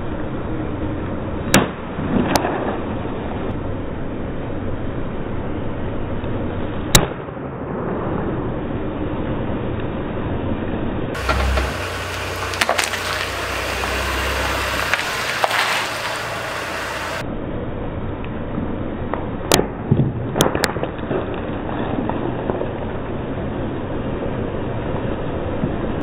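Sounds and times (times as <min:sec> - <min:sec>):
low car rumble: 0:11.1 - 0:19.4
tyre squashing objects on paving: 0:11.2 - 0:17.2.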